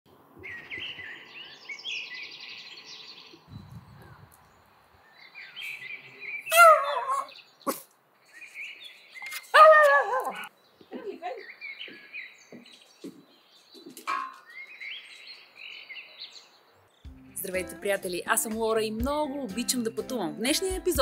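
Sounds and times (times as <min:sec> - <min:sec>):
songbirds chirping: 0:00.1 - 0:20.9
dog yelping: 0:06.5 - 0:07.8, 0:09.3 - 0:10.5, 0:14.1 - 0:14.4.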